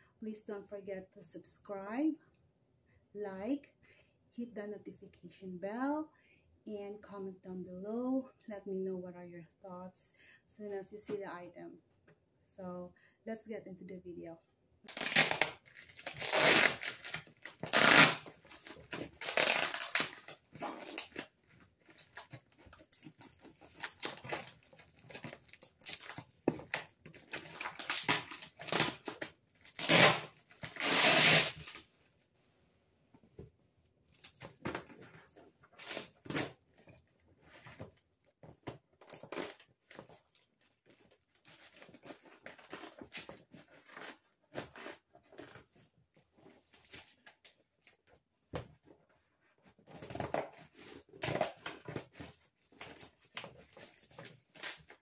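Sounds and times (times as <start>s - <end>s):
scissors cutting tape and plastic: 14.9s - 21.3s, 23.2s - 31.8s, 49.9s - 55.0s
ripping and crinkling: 14.9s - 31.9s.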